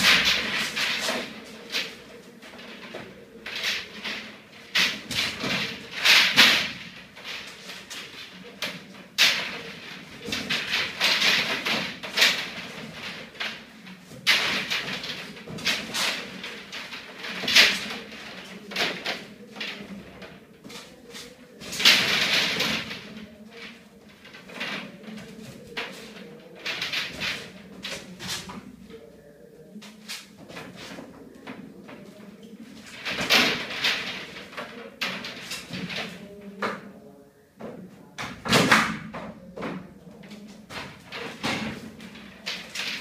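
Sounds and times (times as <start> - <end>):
plastic pipe scraping and rustling: 0.0 - 43.0.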